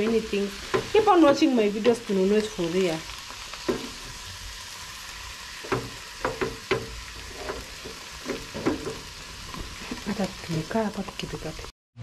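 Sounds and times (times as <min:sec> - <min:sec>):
wooden spoon clacking on a pan: 0:00.0 - 0:01.0, 0:05.6 - 0:10.4
vegetables sizzling in a frying pan: 0:00.0 - 0:11.7.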